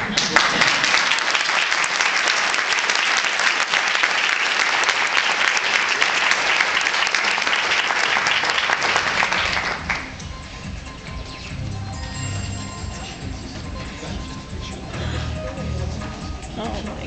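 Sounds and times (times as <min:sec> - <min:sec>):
audience applauding: 0:00.0 - 0:10.5.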